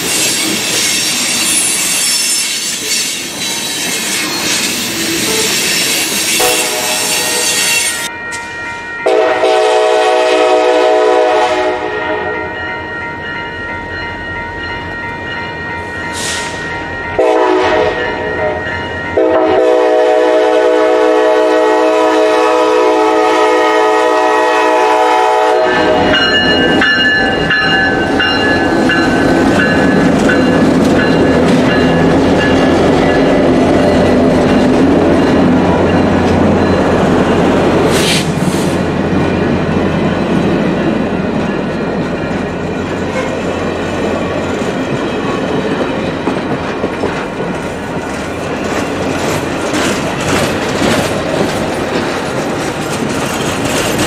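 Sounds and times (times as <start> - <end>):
train wheel noise: 0.0 - 11.6, 13.2 - 54.0
locomotive air horn blasts: 6.3 - 8.1, 9.0 - 12.6, 17.2 - 18.6, 19.2 - 26.2.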